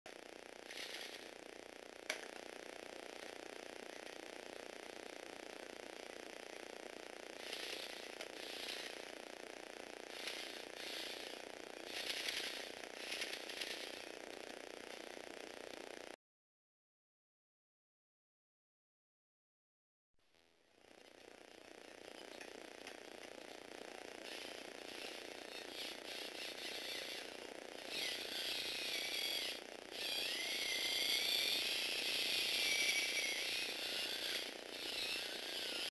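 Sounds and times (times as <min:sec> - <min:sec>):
toy motors whirring and clattering: 0:00.2 - 0:02.4, 0:07.0 - 0:16.2, 0:20.8 - 0:35.9
plastic gears rattling: 0:00.7 - 0:01.3, 0:07.4 - 0:09.1, 0:10.1 - 0:14.2.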